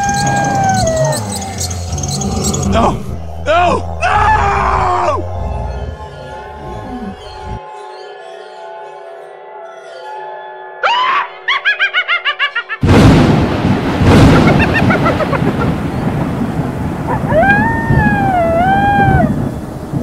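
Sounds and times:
long wavering howl: 0:00.0 - 0:07.6, 0:17.1 - 0:20.0
rising shriek: 0:00.0 - 0:07.6
loud thunderclap: 0:12.8 - 0:20.0
rolling thunder: 0:12.8 - 0:20.0
steady rain: 0:12.8 - 0:20.0.

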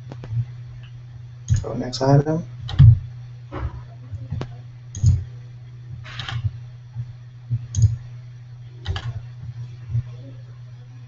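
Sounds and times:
steady low hum: 0:00.0 - 0:11.0
computer mouse clicks: 0:01.5 - 0:01.7, 0:04.3 - 0:05.2, 0:06.1 - 0:06.5, 0:07.7 - 0:08.0, 0:08.8 - 0:09.2.

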